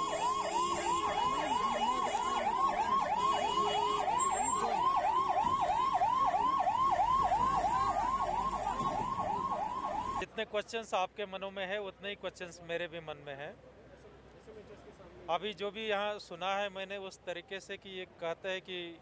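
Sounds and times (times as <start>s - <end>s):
ambulance siren yelping: 0.0s - 10.2s.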